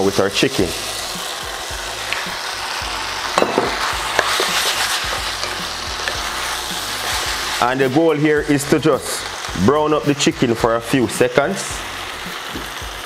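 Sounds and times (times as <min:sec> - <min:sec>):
chicken sizzling in a pan: 0:00.0 - 0:13.0
wooden spoon scraping and knocking pan: 0:03.4 - 0:06.4.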